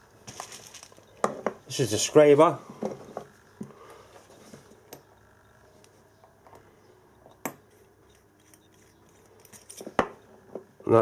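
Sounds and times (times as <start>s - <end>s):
handling sounds on a workbench: 0.2s - 1.6s, 7.2s - 10.7s.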